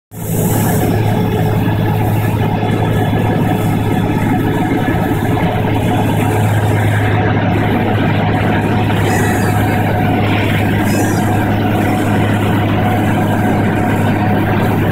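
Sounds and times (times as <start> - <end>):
propeller plane engine hum: 0.2 - 14.9
loud air rush: 6.6 - 14.7.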